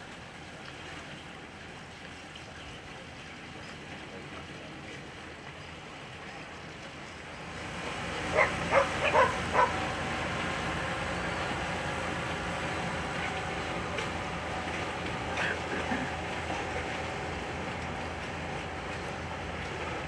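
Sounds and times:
engine drone: 0.0 - 20.0
dog barking: 8.3 - 9.8.

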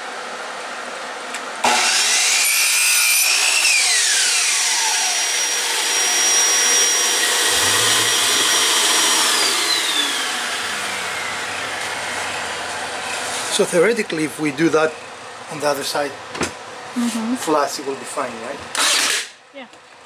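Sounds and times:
shop vacuum whining: 1.3 - 19.3
miter saw cutting wood: 1.6 - 14.9, 18.7 - 19.3.

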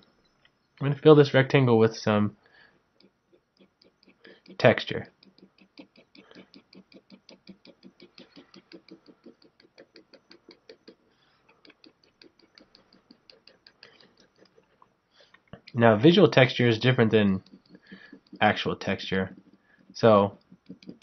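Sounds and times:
pen scratching on paper: 16.0 - 21.0.

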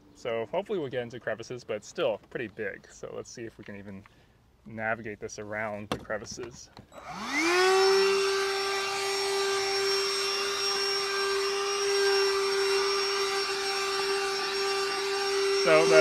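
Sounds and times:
handheld vacuum motor whine: 6.9 - 16.0.

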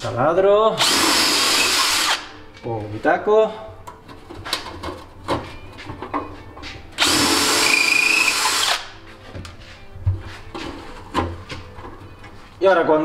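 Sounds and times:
cordless drill whining: 0.8 - 2.3, 7.0 - 8.9.

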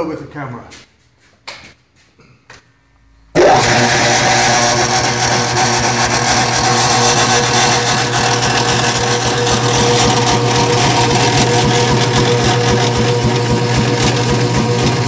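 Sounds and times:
power hammer motor humming: 3.3 - 15.0.

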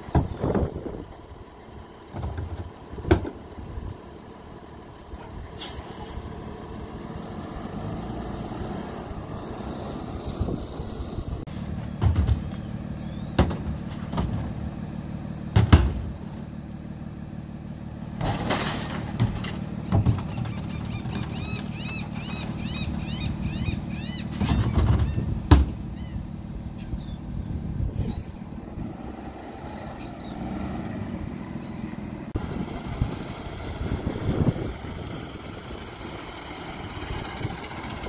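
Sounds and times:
garbage truck diesel engine: 0.0 - 38.0.

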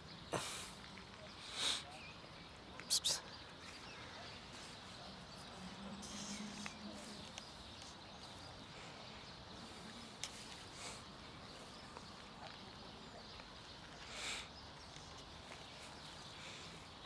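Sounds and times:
low outdoor hiss: 0.0 - 17.0.

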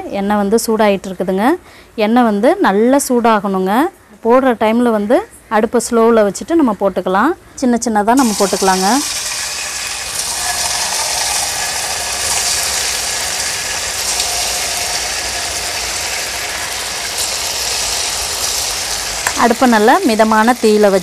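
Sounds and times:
batter sizzling in hot oil: 8.2 - 21.0.

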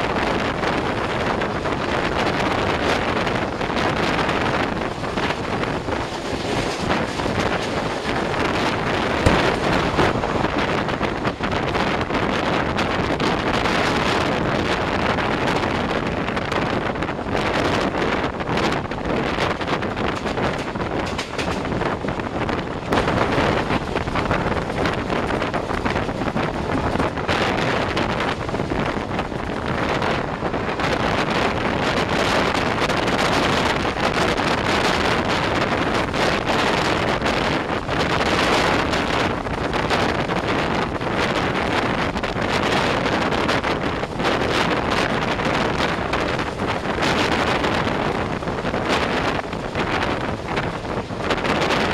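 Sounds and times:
train running: 0.0 - 51.9
wind buffeting microphone: 0.0 - 51.9
sharp knock: 9.2 - 10.2.

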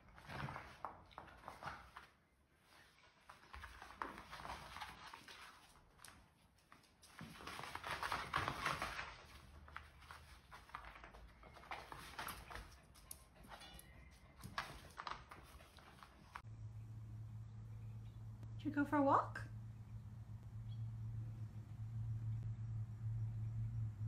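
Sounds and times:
paws scrabbling on floor: 0.0 - 16.4
dogs scuffling: 0.0 - 16.5.

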